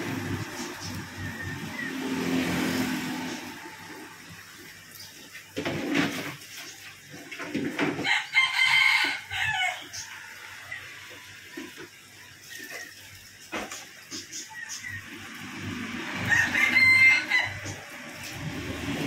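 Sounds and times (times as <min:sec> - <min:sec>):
rooster crowing: 0:08.0 - 0:10.6, 0:16.0 - 0:18.1.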